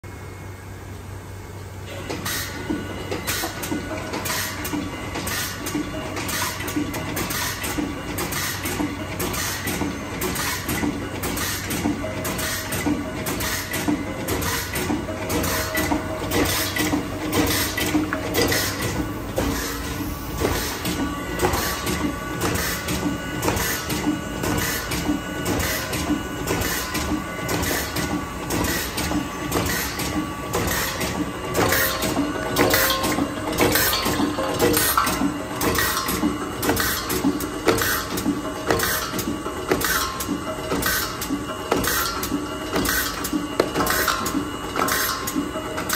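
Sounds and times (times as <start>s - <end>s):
constant machine hum: 0.0s - 45.9s
machine rhythmic clicking clatter: 1.8s - 45.9s.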